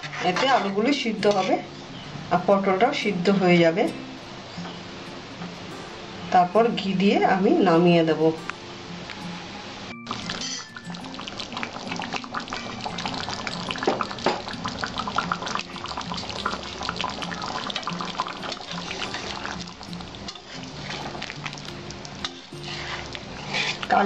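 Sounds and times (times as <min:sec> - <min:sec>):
metal spatula scraping pan: 0:00.0 - 0:01.7, 0:17.8 - 0:19.5, 0:20.3 - 0:21.5, 0:22.2 - 0:24.0
soft background music: 0:00.0 - 0:24.0
curry simmering and bubbling: 0:10.1 - 0:24.0.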